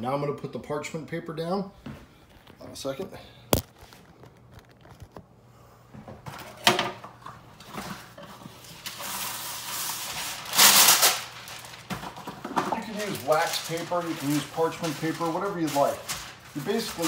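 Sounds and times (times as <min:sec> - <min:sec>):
paper rustling: 0:07.6 - 0:17.0.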